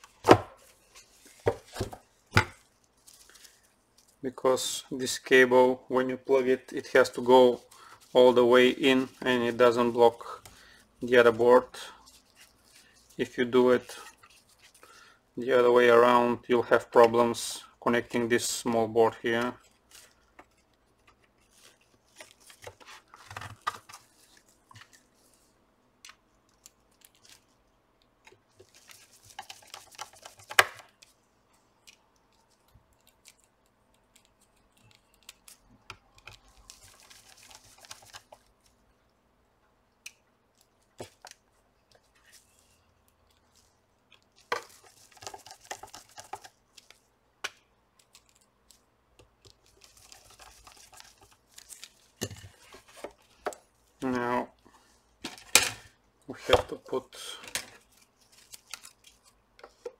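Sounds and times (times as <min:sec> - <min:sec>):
rustling handling noise: 0:00.0 - 0:38.9, 0:40.4 - 0:59.9.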